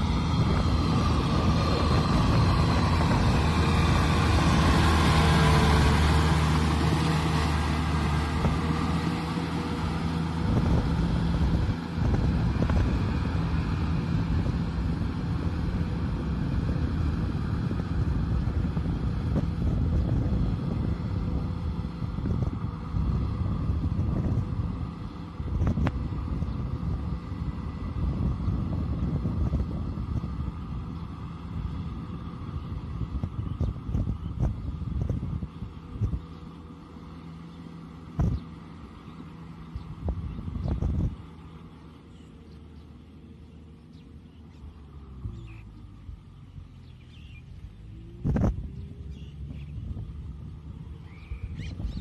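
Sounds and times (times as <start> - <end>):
tractor diesel engine running: 0.0 - 52.0.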